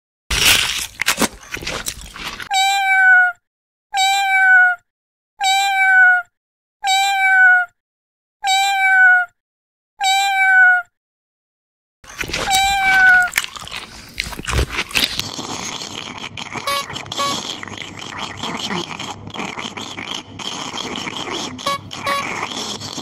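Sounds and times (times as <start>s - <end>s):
crunchy eating noise: 0.3s - 2.6s, 12.0s - 23.0s
cat meowing: 2.5s - 3.4s, 4.0s - 4.8s, 5.4s - 7.8s, 8.4s - 9.4s, 10.0s - 10.9s, 12.4s - 13.3s.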